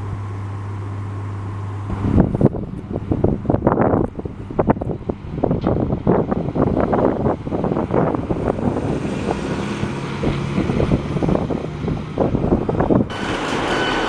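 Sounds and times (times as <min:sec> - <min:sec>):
diesel bus engine running: 0:00.0 - 0:14.0
diesel train high-pitched whine: 0:00.0 - 0:14.0
wind buffeting microphone: 0:01.9 - 0:13.7.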